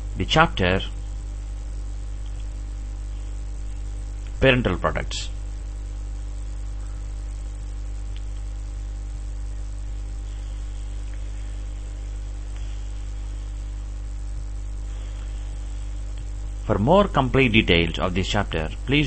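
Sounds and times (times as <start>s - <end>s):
low electrical hum: 0.0s - 19.0s
faint hiss: 2.1s - 18.0s.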